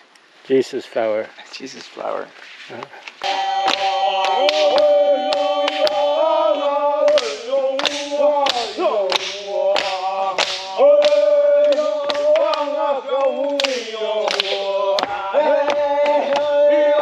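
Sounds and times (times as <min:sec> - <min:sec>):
sharp hand claps: 0:03.2 - 0:06.1, 0:07.0 - 0:16.5
group chanting in unison: 0:03.2 - 0:17.0.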